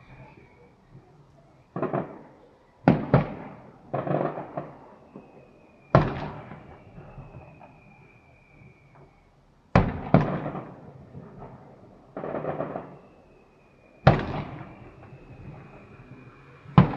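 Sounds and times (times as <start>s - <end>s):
high whistle: 0.0s - 1.8s, 4.4s - 9.4s, 12.6s - 16.9s
fireworks bangs: 1.7s - 16.9s
fireworks crackle: 1.7s - 16.9s.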